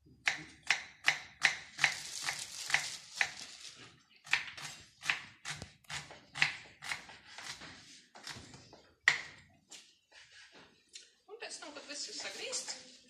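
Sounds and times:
knives chopping on wooden boards: 0.1s - 2.0s, 4.2s - 7.6s, 8.2s - 9.5s.

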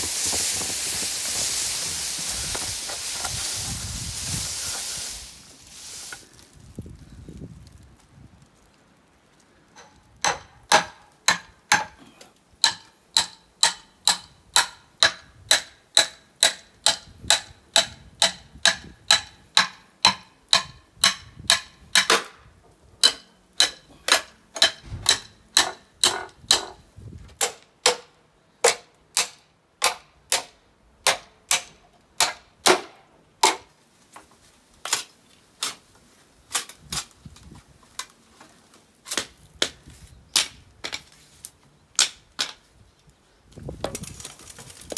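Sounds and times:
bamboo splitting: 9.8s - 22.4s, 23.0s - 26.8s, 27.4s - 33.7s, 34.8s - 35.9s, 36.5s - 42.6s
hammer striking metal blade: 23.0s - 26.7s.

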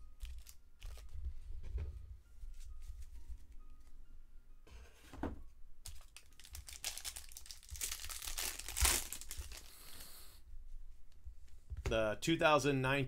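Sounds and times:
plastic wrapper crinkling and tearing: 0.2s - 1.1s, 5.8s - 10.1s.

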